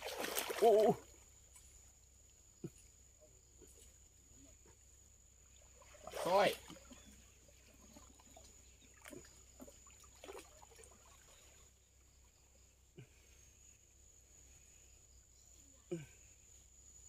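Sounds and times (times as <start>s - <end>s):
soft water splashes: 0.0s - 1.6s, 3.6s - 12.7s.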